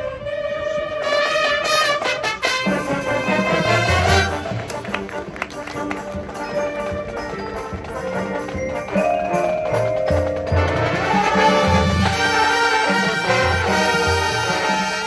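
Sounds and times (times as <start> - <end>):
brass chords: 0.0 - 15.0
marching band playing: 0.6 - 15.0
mallet percussion: 3.0 - 15.0.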